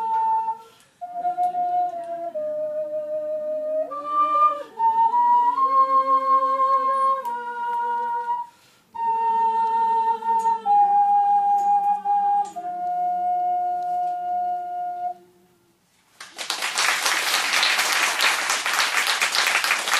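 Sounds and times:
ocarina melody: 0.0 - 15.7
audience applause: 16.1 - 19.9.

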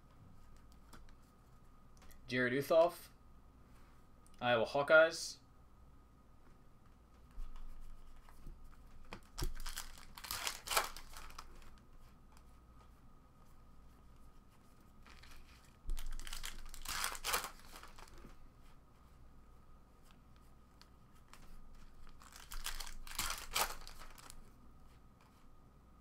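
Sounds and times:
trading cards rustling: 7.5 - 12.5, 15.0 - 18.4, 20.8 - 24.5.

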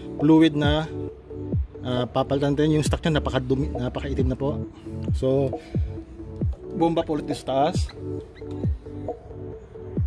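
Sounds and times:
electronic music with deep drums: 0.0 - 10.0.

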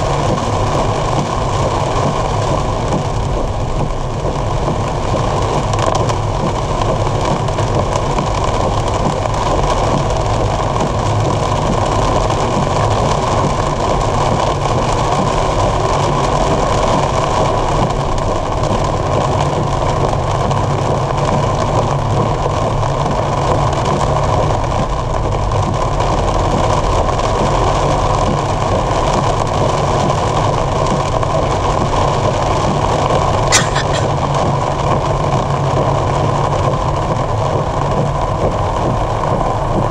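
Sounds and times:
rain on car body: 0.0 - 39.9
tyres on wet road: 0.0 - 39.9
sharp click: 33.5 - 34.1.

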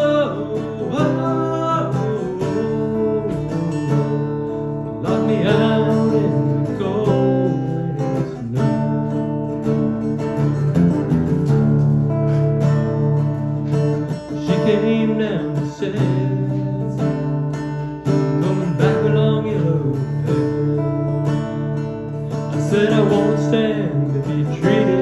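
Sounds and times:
man singing: 0.0 - 9.2, 14.1 - 21.1, 22.3 - 25.0
acoustic guitar strumming: 0.0 - 25.0.

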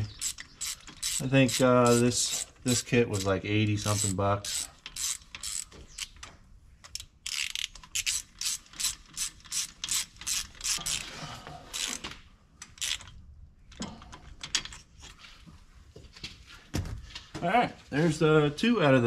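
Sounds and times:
socket ratchet clicking: 0.2 - 2.4, 3.2 - 11.0, 12.6 - 13.2.

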